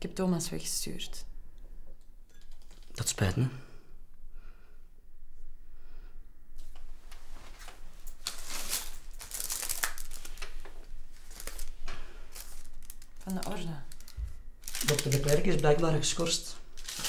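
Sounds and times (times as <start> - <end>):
paper rustling and crinkling: 7.4 - 15.6, 16.8 - 17.0.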